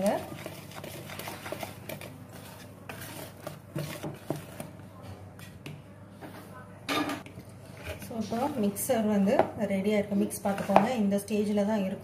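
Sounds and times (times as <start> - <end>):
whisk scraping bowl: 0.0 - 4.8
whisk stirring thick batter: 0.0 - 4.8.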